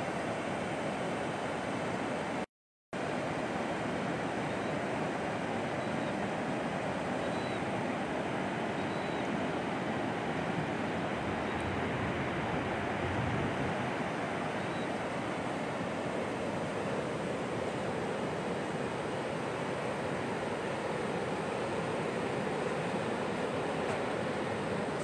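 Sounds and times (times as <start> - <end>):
wind on microphone: 11.3 - 13.8.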